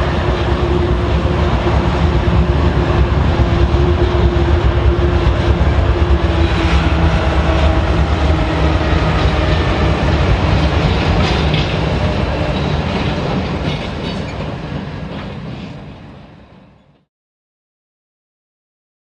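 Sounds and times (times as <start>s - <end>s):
diesel locomotives rumbling past: 0.0s - 17.0s
wheels clicking over rail joints: 8.3s - 15.9s.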